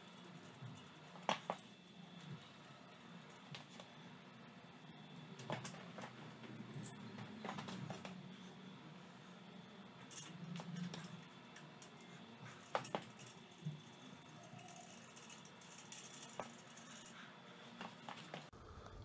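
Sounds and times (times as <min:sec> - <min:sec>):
metal parts clicking and clinking: 0:10.0 - 0:18.5.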